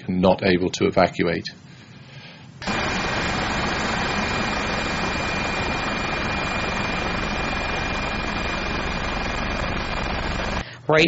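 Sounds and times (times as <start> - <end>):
engine rushing with high whine: 2.6 - 10.6.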